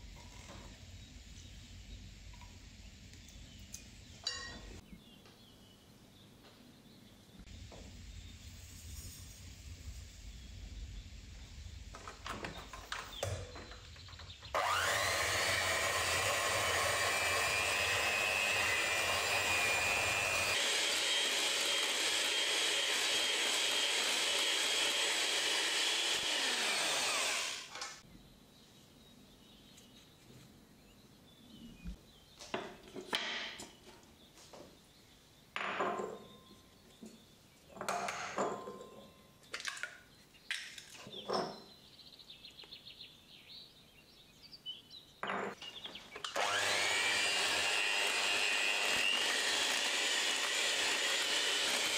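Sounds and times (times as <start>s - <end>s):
electric hand mixer whining: 14.5s - 28.0s, 46.2s - 51.9s.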